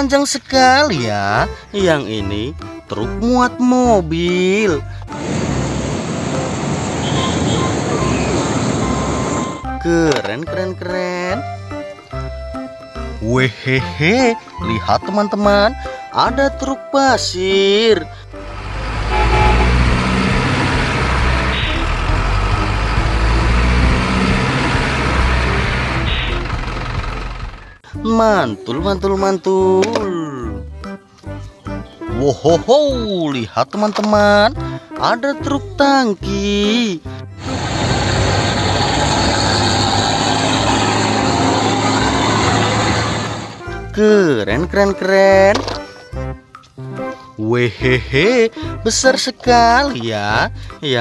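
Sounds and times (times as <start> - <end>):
truck engine rumbling: 1.4 - 14.6, 17.2 - 29.2, 37.2 - 44.0
road and traffic noise: 5.0 - 10.3, 17.9 - 27.9, 37.2 - 43.9.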